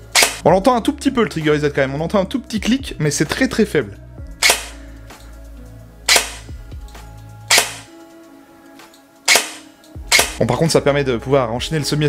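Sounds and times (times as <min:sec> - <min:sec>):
airsoft gun shots: 0:00.1 - 0:00.4, 0:04.4 - 0:04.8, 0:06.1 - 0:06.4, 0:07.5 - 0:07.9, 0:09.3 - 0:10.4.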